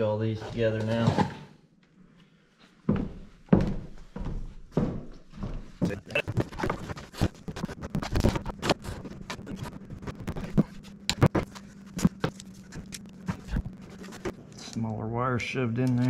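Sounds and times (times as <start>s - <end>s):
faint low hum: 0.0s - 16.0s
cable scraping and rustling: 0.3s - 1.4s, 5.8s - 14.9s.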